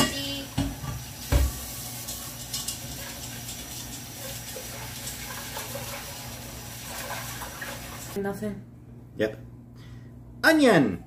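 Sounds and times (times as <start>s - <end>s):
steady low hum: 8.2s - 11.0s.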